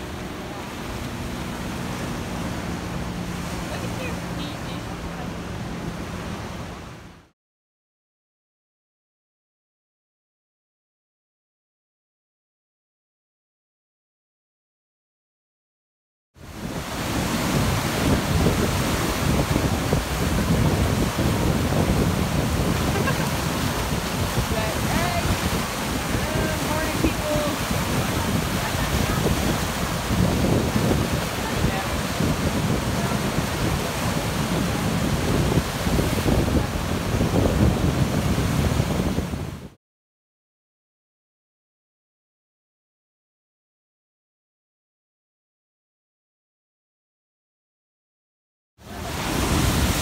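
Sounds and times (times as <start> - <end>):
surf washing over rocks: 0.0 - 7.1, 16.4 - 39.8, 48.8 - 50.0
wind buffeting microphone: 16.5 - 39.8, 48.9 - 50.0.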